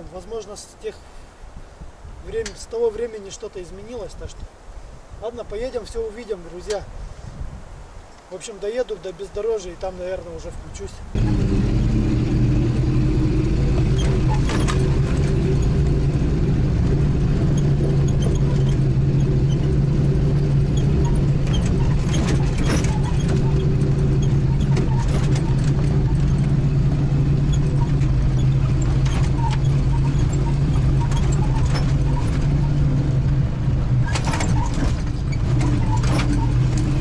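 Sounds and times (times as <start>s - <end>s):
road noise: 0.0s - 37.0s
knocks and rattles: 11.2s - 37.0s
vehicle engine running: 11.2s - 37.0s.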